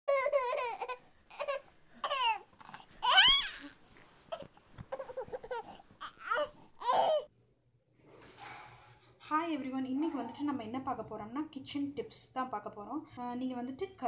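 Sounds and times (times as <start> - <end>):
baby squealing: 0.1 - 2.4, 3.0 - 7.3
baby babbling and crying: 0.1 - 7.3.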